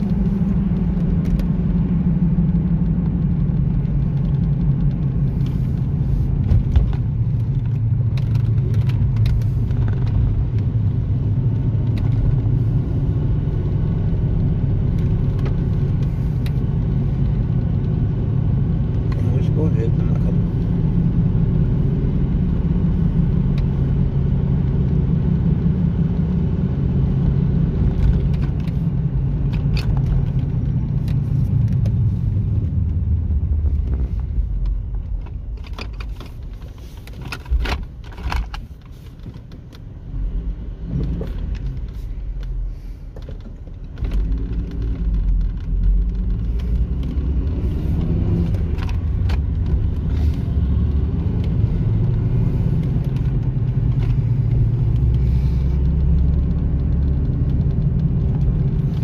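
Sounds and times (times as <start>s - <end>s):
car engine and road rumble: 0.0s - 59.0s
clicks and rattles: 34.6s - 39.9s.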